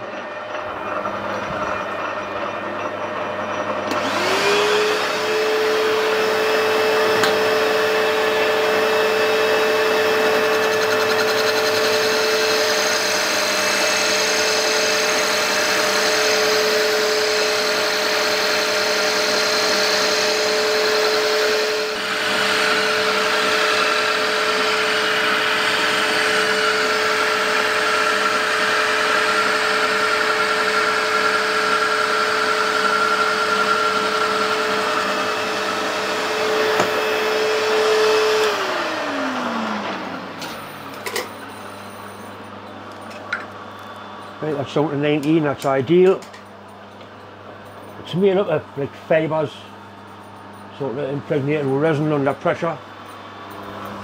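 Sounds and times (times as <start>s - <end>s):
vacuum cleaner motor whine: 0.0s - 42.2s
lathe running: 0.0s - 42.3s.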